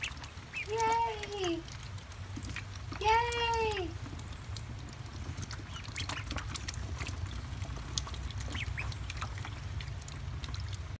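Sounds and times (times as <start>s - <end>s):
duckling peeps: 0.0s - 1.4s, 4.9s - 10.8s
ducklings splashing in water: 0.0s - 11.0s.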